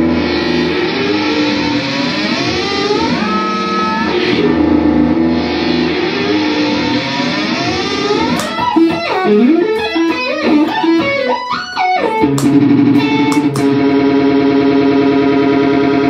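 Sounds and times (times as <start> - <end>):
electric guitar playing: 0.0 - 16.0
sharp clicks: 8.3 - 13.8.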